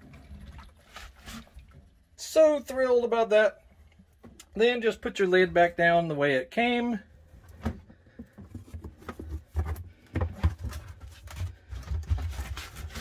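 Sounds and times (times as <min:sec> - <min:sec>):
plastic lid knocking and scraping: 0:07.6 - 0:13.0.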